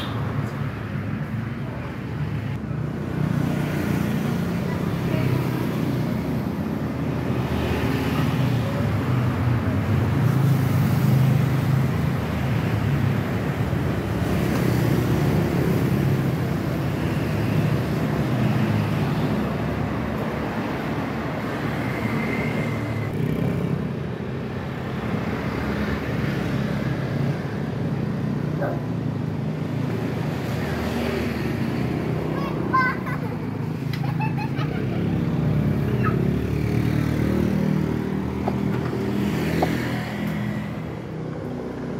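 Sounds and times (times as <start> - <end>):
road traffic rumble: 0.0 - 41.9.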